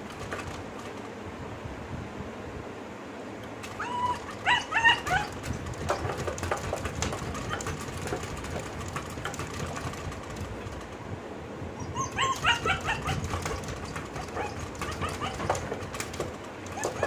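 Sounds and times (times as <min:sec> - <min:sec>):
paws scratching on glass: 0:00.0 - 0:01.1, 0:03.6 - 0:11.0, 0:12.0 - 0:17.0
puppy whining and yipping: 0:03.6 - 0:10.4, 0:11.8 - 0:17.0.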